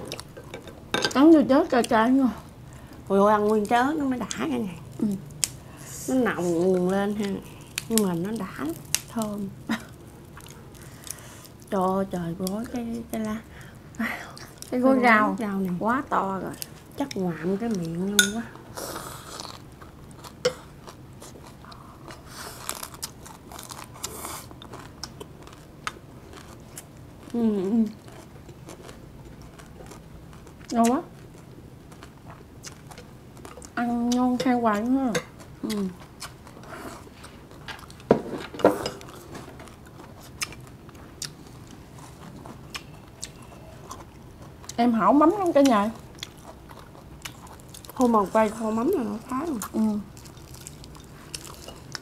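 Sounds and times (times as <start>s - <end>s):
crunchy chewing of raw vegetables: 18.7s - 38.1s, 38.8s - 52.0s.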